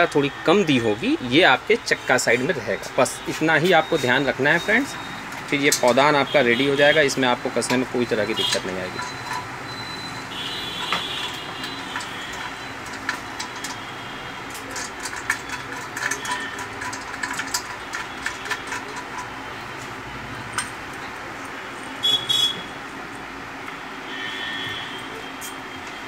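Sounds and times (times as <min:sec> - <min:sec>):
metal parts clicking and knocking: 0:04.6 - 0:22.0
loud metal clinks: 0:08.2 - 0:19.4.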